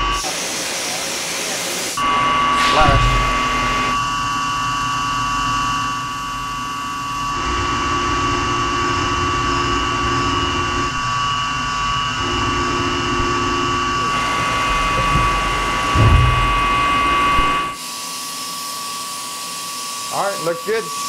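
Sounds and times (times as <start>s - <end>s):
grinding wheel whine: 0.0s - 21.0s.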